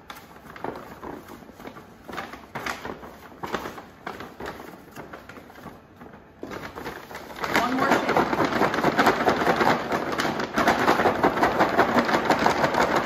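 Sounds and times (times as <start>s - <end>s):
paper bag crinkling: 0.0s - 13.0s
cereal tumbling in bag: 6.4s - 13.0s.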